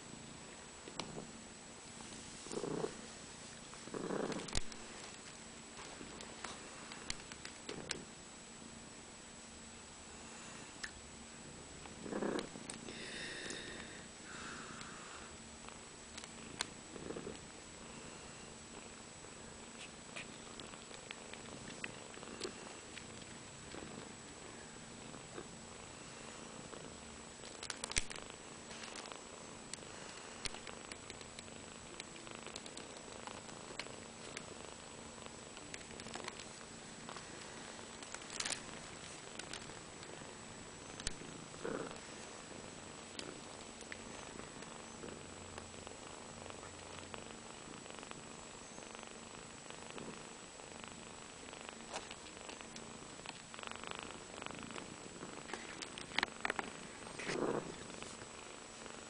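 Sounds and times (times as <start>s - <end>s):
cat purring: 0.0s - 8.2s, 10.1s - 59.0s
small clicks: 27.4s - 34.5s, 40.9s - 41.2s
faint sharp clicks: 41.0s - 41.2s.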